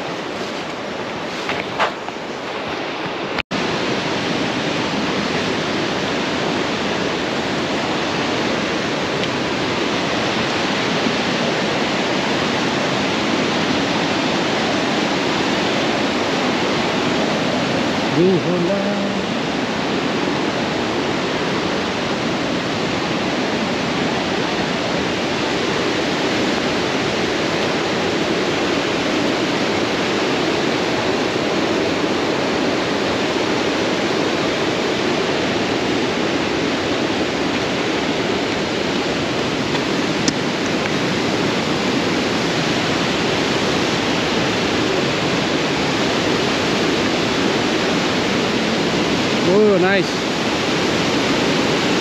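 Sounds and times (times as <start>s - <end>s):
waterfall rushing: 0.0s - 52.0s.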